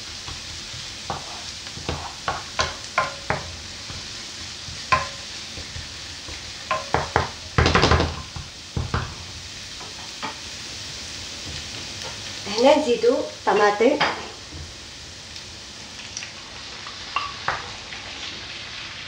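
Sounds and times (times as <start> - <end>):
onion sizzling: 0.0 - 19.0
wooden spoon knocking and scraping pan: 0.2 - 10.5.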